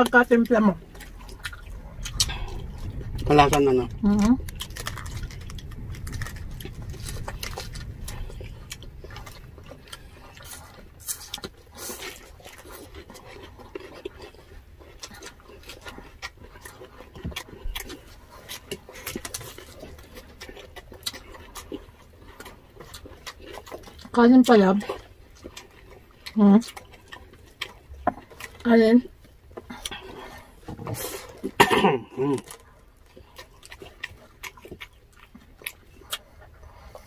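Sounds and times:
chewing: 0.0 - 37.0
crispy food crunching: 0.0 - 37.0.

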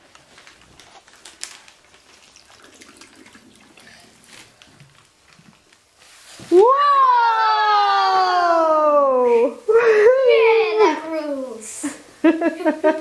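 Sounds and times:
liquid trickling through funnel: 1.7 - 6.0.

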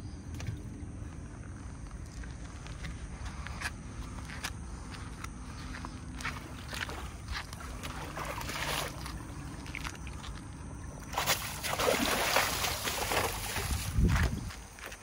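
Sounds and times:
splashing through shallow water: 6.2 - 15.0.

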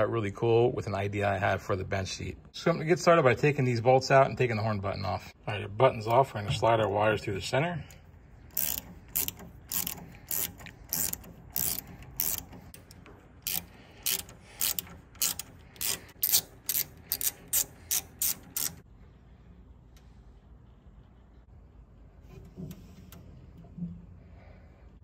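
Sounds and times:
hand ratchet clicking: 8.4 - 18.8.

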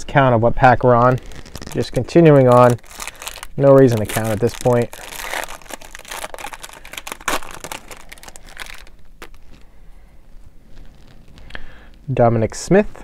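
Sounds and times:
wrapper tearing and crinkling: 0.9 - 9.7.

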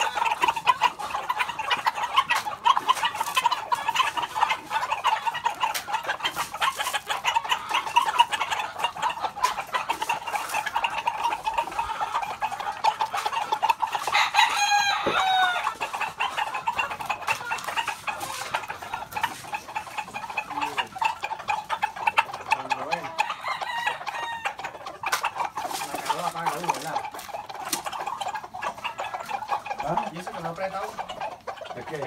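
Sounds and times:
roosters clucking: 0.0 - 32.0
rooster crowing: 14.1 - 15.8, 23.2 - 24.6.

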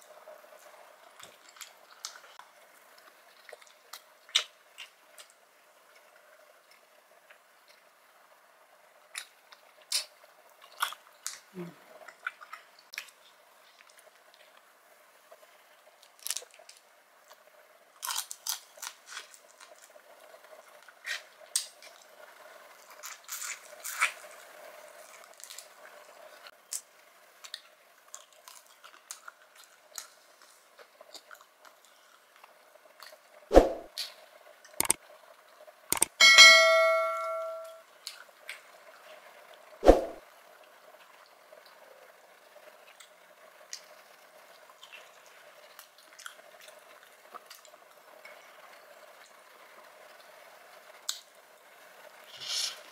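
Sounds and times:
soft chewing: 0.1 - 8.0, 9.1 - 33.2, 42.7 - 50.4
ringing clink: 36.1 - 37.8.

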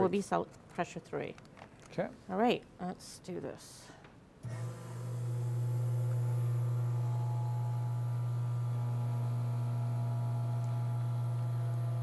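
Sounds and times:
vacuum pump humming: 4.4 - 12.0.

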